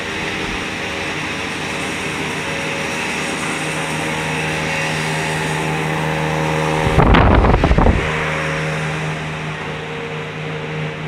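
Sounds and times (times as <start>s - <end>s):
machine hum with low tones: 0.0s - 11.0s
fluttering low rumble on microphone: 6.8s - 8.2s.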